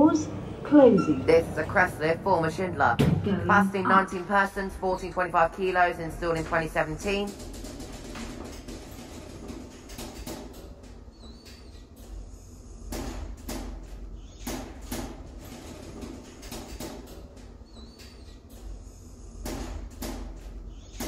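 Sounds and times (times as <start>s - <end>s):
lift humming: 0.0s - 9.7s.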